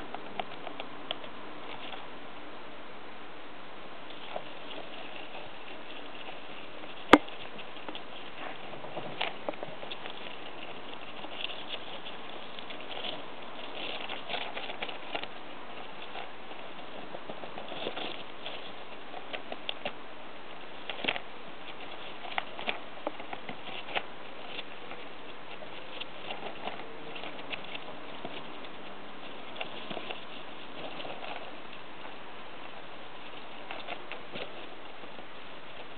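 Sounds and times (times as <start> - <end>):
steady background hiss: 0.0 - 35.9
hamster gnawing cardboard tube: 0.1 - 2.1, 4.1 - 35.9.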